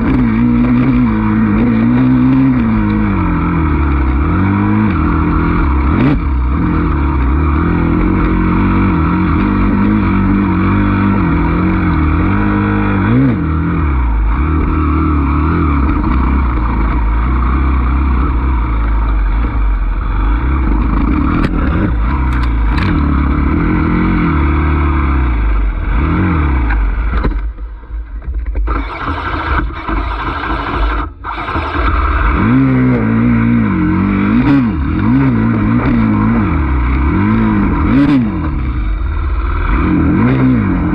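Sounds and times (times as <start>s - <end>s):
dirt bike engine revving: 0.0s - 27.2s, 28.7s - 40.9s.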